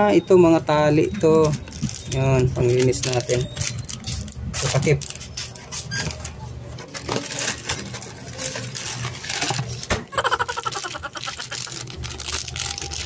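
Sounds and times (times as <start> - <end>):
plastic bags crinkling: 1.7 - 5.3, 7.1 - 13.0.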